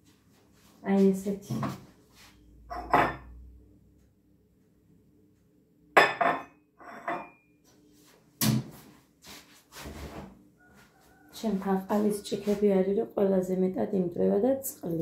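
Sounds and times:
dishes and metal pot clattering: 2.7 - 3.4, 6.0 - 7.4.

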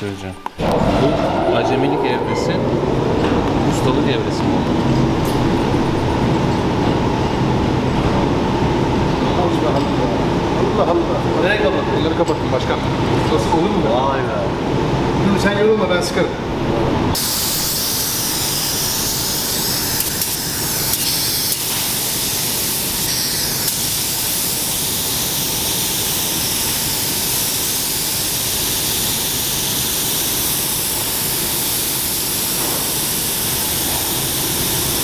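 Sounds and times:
paint spray gun hissing: 17.2 - 35.0.

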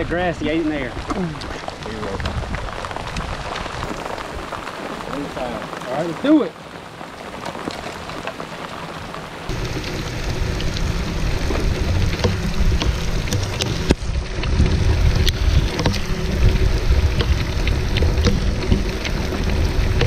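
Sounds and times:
rain pattering on a boat: 0.0 - 20.0
steady low rumble: 9.4 - 20.0.

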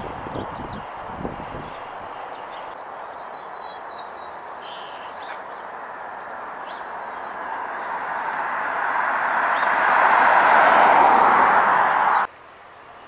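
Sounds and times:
small birds chirping: 0.2 - 10.0.

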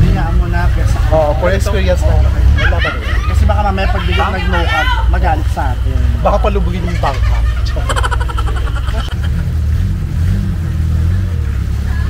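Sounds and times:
person laughing: 7.0 - 9.5.

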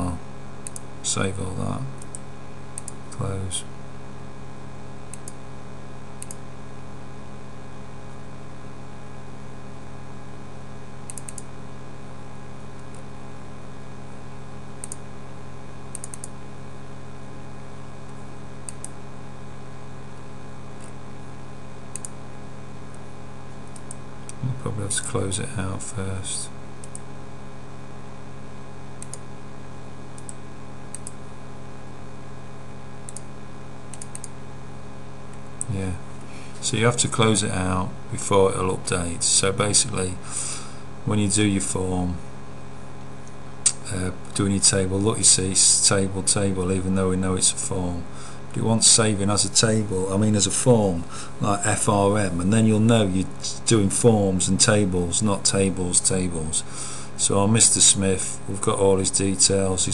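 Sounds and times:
low electrical hum: 0.0 - 59.9
computer mouse clicks: 0.6 - 0.9, 2.0 - 3.0, 5.1 - 5.4, 6.2 - 6.4, 11.0 - 11.5, 14.8 - 15.0, 15.9 - 16.4, 18.1 - 19.0, 21.9 - 22.2, 23.6 - 24.4, 26.8 - 27.1, 29.0 - 29.2, 30.2 - 31.2, 33.1 - 33.3, 33.9 - 34.4
low hum: 33.9 - 59.9.

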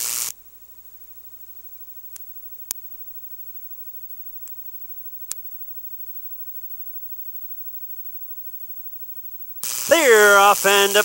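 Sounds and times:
faint hiss with low hum: 0.0 - 11.0
sharp clicks: 2.1 - 2.9.

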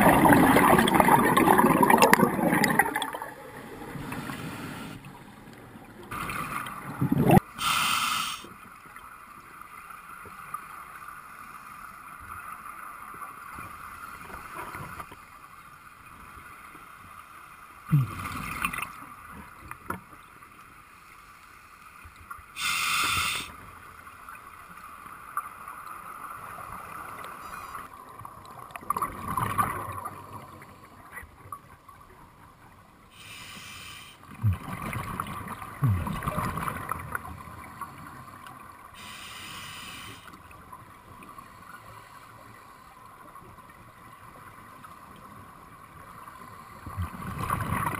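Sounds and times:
gurgling exhaled bubbles: 0.0 - 4.2, 6.2 - 7.4, 34.4 - 37.3
hissing regulator inhalation: 7.6 - 8.5, 22.6 - 23.5, 33.2 - 34.2, 39.0 - 40.4.

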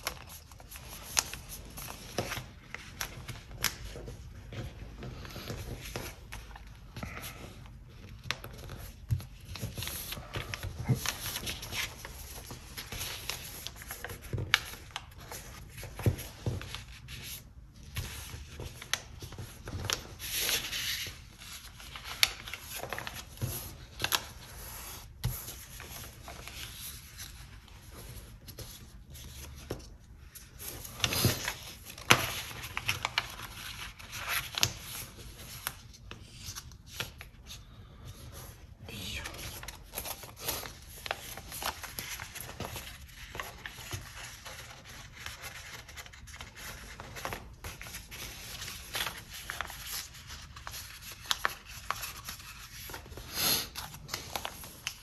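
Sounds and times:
paper rustling and crinkling: 0.0 - 55.0.

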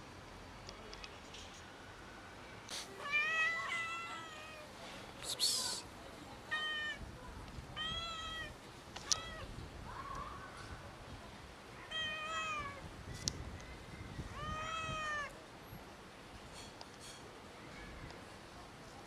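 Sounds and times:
cats meowing: 3.0 - 4.7, 7.8 - 9.5, 11.8 - 12.8, 14.4 - 15.3.

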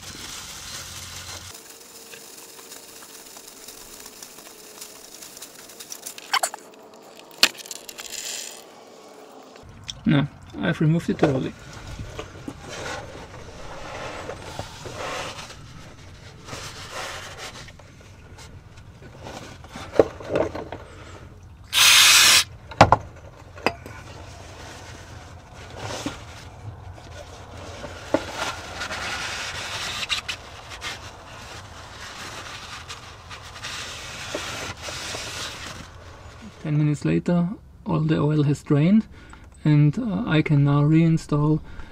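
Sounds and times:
oil trickling into pan: 1.6 - 6.3
loud hiss: 21.7 - 22.5.

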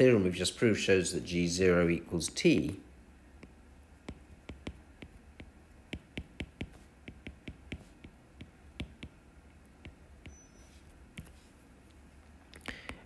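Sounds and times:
stylus tapping on glass screen: 3.4 - 11.4.

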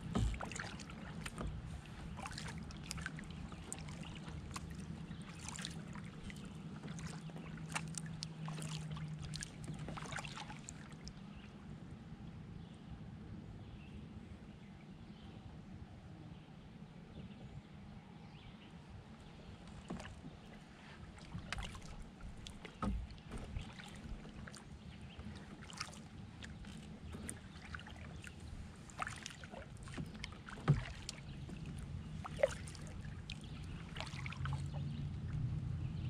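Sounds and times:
paddle splashing water: 0.0 - 11.6, 19.2 - 35.8
low steady rumble: 0.0 - 36.0.

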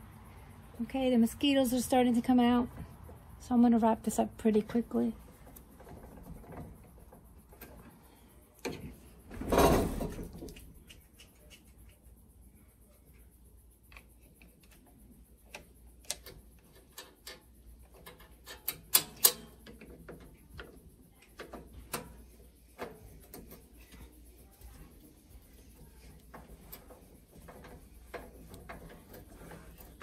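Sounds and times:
hands clicking grill controls: 13.8 - 24.2, 25.5 - 30.0.

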